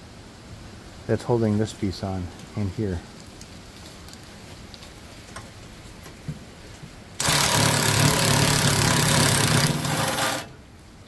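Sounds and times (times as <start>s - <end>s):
impact driver running: 7.2s - 10.6s.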